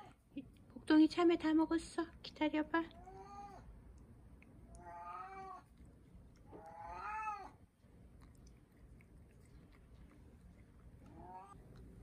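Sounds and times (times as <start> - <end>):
cat meowing: 3.0 - 3.7, 4.7 - 5.7, 6.5 - 7.6, 11.1 - 11.6.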